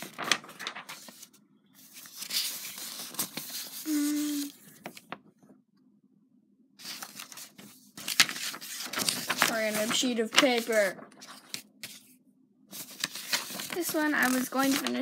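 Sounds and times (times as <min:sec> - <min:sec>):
paper rustling: 0:00.0 - 0:05.2, 0:06.8 - 0:12.1, 0:12.7 - 0:15.0
person humming: 0:03.9 - 0:04.6.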